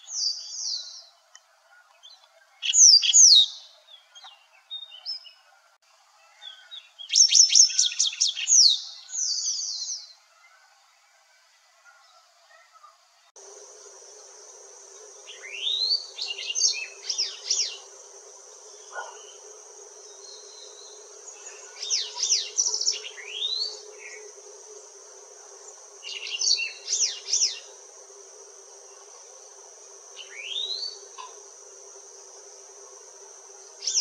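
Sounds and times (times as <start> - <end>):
high-pitched insect drone: 13.4 - 34.0.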